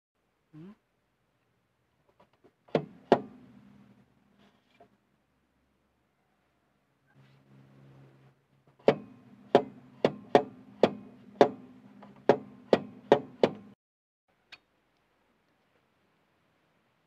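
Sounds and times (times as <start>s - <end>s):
loose wheel hub clunking: 8.8s - 13.8s.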